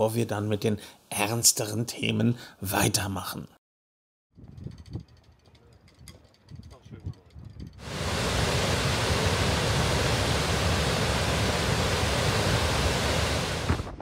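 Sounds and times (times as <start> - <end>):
waterfall rushing: 7.8 - 14.0.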